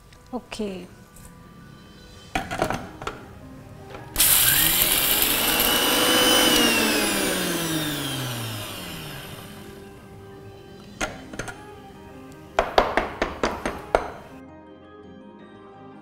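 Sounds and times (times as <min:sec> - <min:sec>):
mixer grinder whining: 0:03.9 - 0:10.5.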